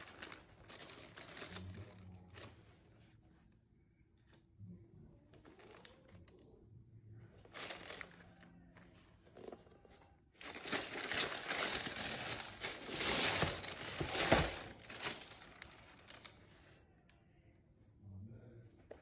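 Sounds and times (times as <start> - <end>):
tissue paper crinkling: 0.0 - 3.1, 7.4 - 8.5, 10.4 - 16.8.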